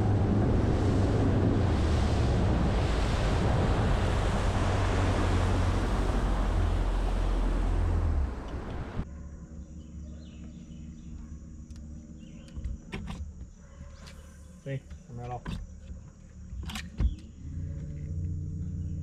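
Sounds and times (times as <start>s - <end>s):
rushing water: 0.0s - 9.0s
wind on microphone: 0.0s - 9.0s
boat engine rumble: 0.0s - 19.0s.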